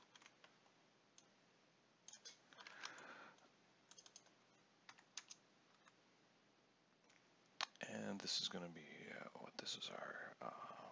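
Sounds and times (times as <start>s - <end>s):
computer keyboard keystrokes: 0.0s - 0.6s, 3.9s - 6.0s.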